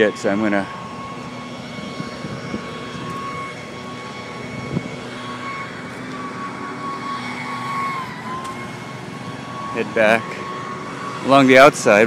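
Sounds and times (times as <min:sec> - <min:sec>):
city traffic engine noise: 0:00.0 - 0:12.0
high steady whine: 0:00.0 - 0:12.0.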